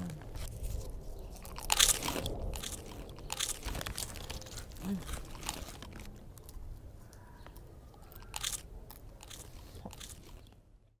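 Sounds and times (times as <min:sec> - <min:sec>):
person chewing popcorn: 0:01.4 - 0:06.7, 0:08.1 - 0:10.6.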